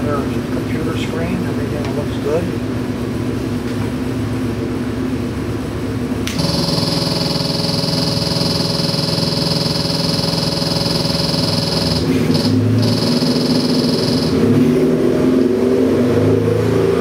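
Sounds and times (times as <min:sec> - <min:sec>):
engine idling: 0:00.0 - 0:14.6
steady high-pitched whine: 0:00.0 - 0:15.6.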